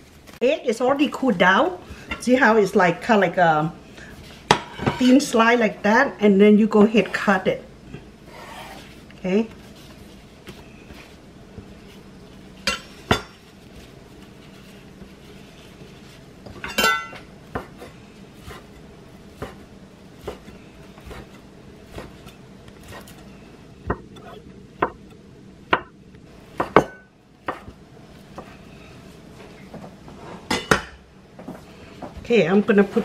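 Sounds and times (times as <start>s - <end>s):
knife chopping on wooden board: 17.5s - 17.9s, 19.4s - 19.6s, 20.2s - 23.1s, 26.6s - 27.7s.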